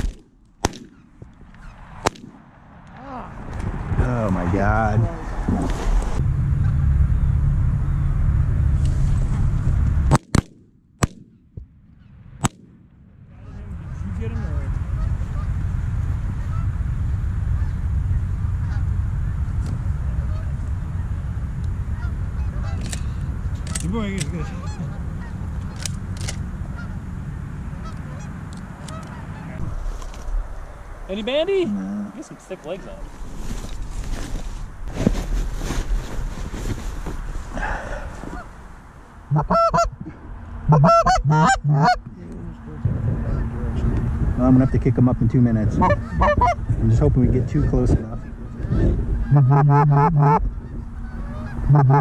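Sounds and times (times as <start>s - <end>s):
shotguns firing: 0.0s - 1.1s
low rumble: 0.0s - 52.0s
wind on microphone: 3.3s - 10.1s, 29.0s - 31.6s, 42.7s - 51.8s
goose honks and clucks: 13.4s - 15.5s, 16.4s - 16.7s, 18.5s - 19.6s, 21.9s - 23.0s, 23.6s - 25.9s, 26.6s - 27.0s, 27.8s - 29.6s, 39.3s - 40.0s, 40.6s - 42.1s, 45.7s - 46.7s, 47.4s - 52.0s.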